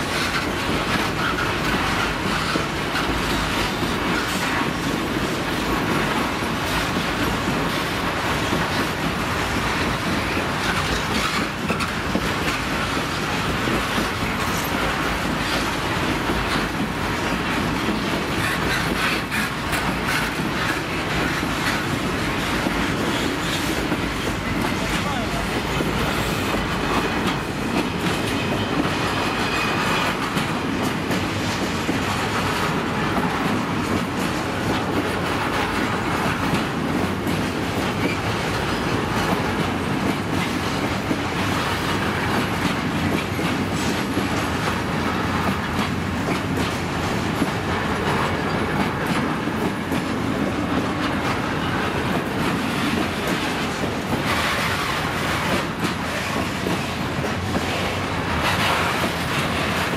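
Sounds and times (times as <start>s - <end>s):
train wheels clattering on rails: 0.0s - 59.9s.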